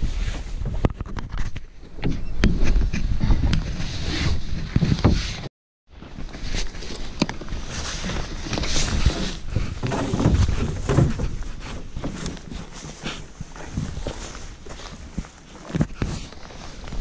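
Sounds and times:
rain jacket and straps rustling: 0:06.1 - 0:17.0.

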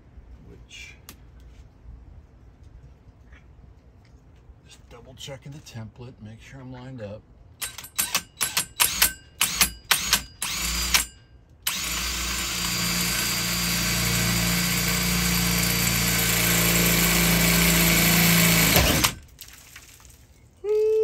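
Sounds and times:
drill hole saw cutting sheet metal: 0:07.6 - 0:19.2.

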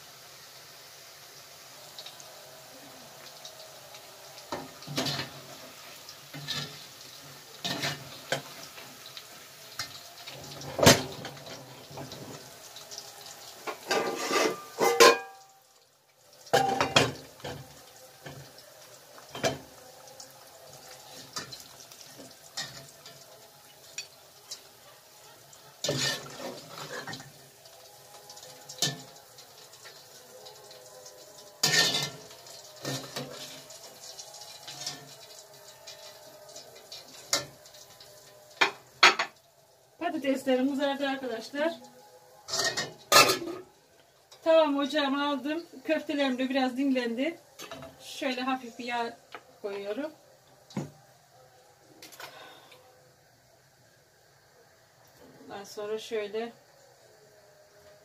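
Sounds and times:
chips frying in oil: 0:00.0 - 0:58.0
utensils and pots clinking: 0:04.3 - 0:15.6, 0:16.4 - 0:39.5, 0:42.3 - 0:44.6, 0:47.5 - 0:48.6.

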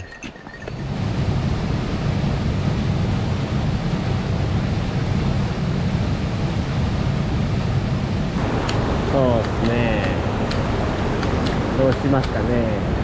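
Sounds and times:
mountain stream rushing: 0:08.4 - 0:13.0.

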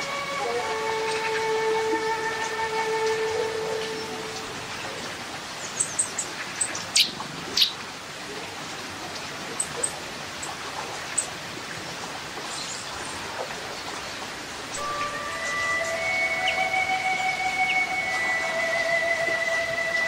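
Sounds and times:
downward-sweeping bird calls: 0:00.0 - 0:07.8, 0:14.7 - 0:20.0
water rushing over rocks: 0:00.0 - 0:20.0
small birds chirping: 0:01.0 - 0:07.8, 0:13.8 - 0:20.0.

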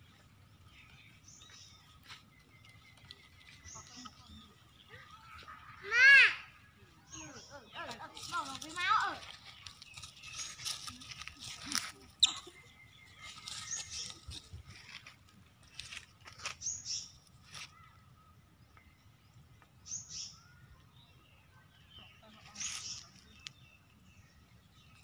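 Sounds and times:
high-pitched chirps and squeaks: 0:10.0 - 0:14.5.

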